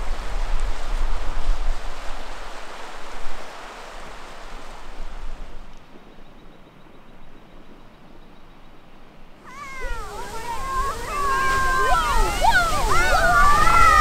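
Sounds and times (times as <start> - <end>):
river rushing over rapids: 0.0 - 5.7, 9.4 - 14.0
soft steady hiss: 0.0 - 14.0
wind buffeting microphone: 9.5 - 14.0.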